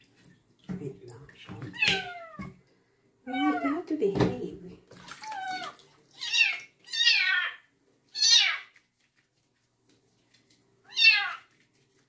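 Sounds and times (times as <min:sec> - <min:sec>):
kitten meowing: 0:01.8 - 0:02.4, 0:05.2 - 0:07.6, 0:08.2 - 0:08.7, 0:10.9 - 0:11.4
water splashing: 0:04.2 - 0:07.5.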